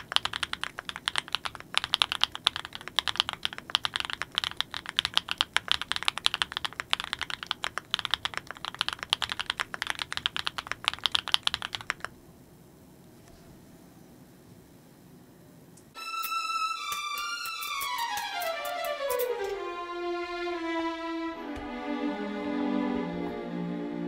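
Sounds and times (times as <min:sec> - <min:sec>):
mechanical keyboard typing: 0:00.0 - 0:12.2.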